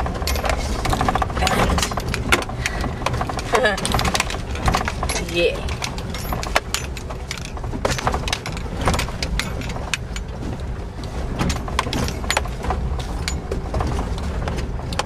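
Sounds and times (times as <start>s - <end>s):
car cabin low rumble: 0.0s - 15.0s
jangling clicking rattles: 0.0s - 15.0s.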